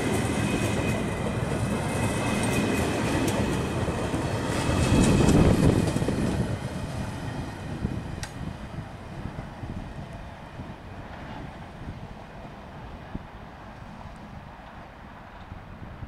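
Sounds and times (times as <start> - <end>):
train wheels clicking over rail joints: 0.0 - 8.5.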